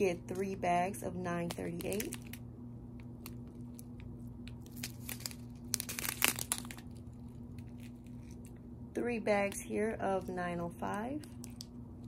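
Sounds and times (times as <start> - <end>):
plastic bags crinkling: 1.5 - 2.4, 3.2 - 8.6, 11.3 - 11.7.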